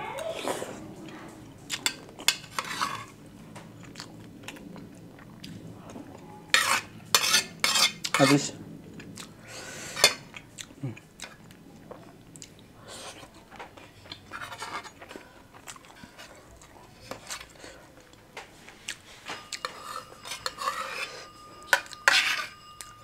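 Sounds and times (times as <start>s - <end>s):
cutlery clinking on a plate: 19.2s - 23.0s.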